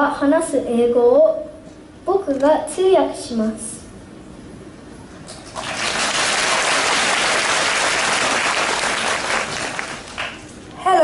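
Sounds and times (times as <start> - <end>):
audience applauding: 5.3 - 10.4.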